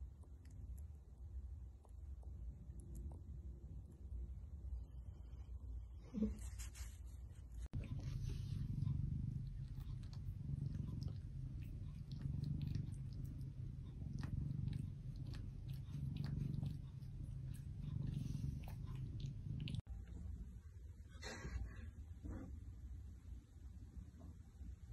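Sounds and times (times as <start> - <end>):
cat purring: 2.2 - 20.5
cat licking: 7.7 - 19.9.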